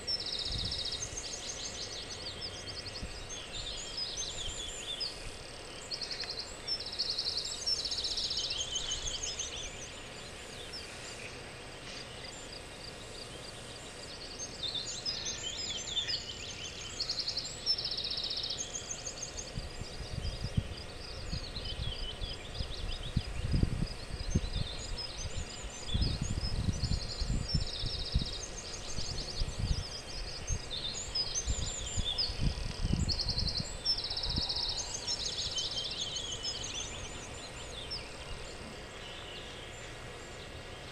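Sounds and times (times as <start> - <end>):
wind buffeting microphone: 0.0 - 1.5, 2.4 - 5.5, 19.4 - 38.6
songbirds singing: 0.0 - 40.9.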